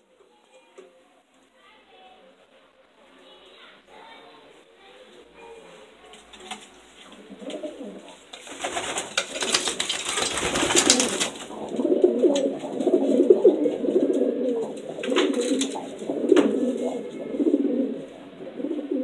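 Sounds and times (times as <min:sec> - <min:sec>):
rustling and scraping: 0:05.4 - 0:17.4
pigeons cooing: 0:06.4 - 0:19.0.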